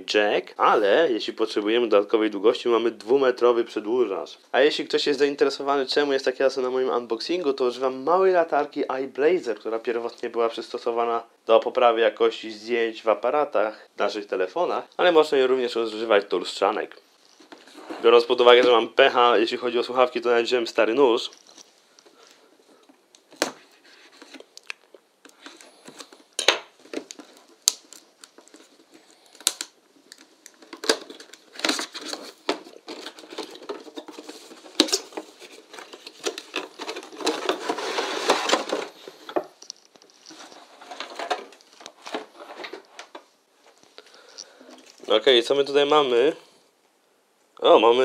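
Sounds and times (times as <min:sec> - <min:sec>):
cardboard box opening: 0:30.7 - 0:39.6
foam tray scraping out: 0:37.4 - 0:39.0.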